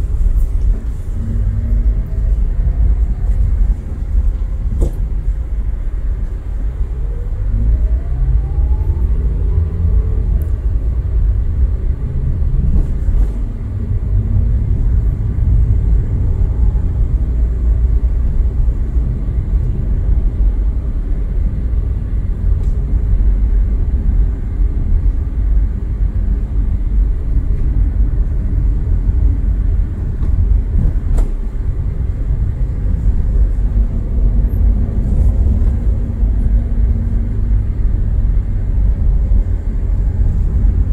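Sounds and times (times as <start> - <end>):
vehicle engine and road noise: 0.0 - 40.9
rising whine: 5.3 - 20.9.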